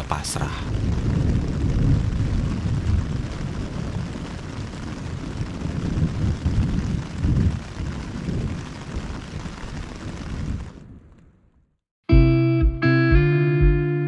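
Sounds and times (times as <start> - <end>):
rolling thunder: 0.6 - 11.4.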